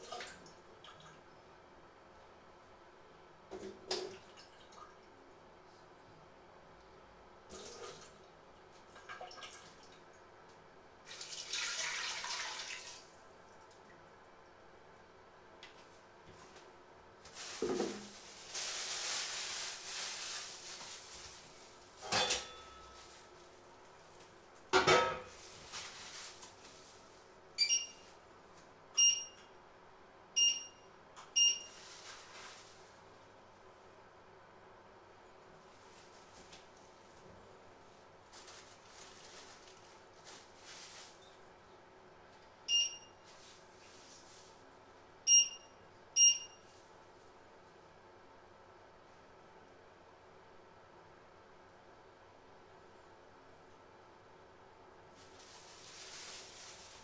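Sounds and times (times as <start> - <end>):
water poured into metal pot: 11.1 - 13.0
handling noises: 15.8 - 27.2
hob touch control beeps: 27.6 - 28.0, 29.0 - 29.4, 30.4 - 30.8, 42.7 - 43.1, 45.3 - 46.6.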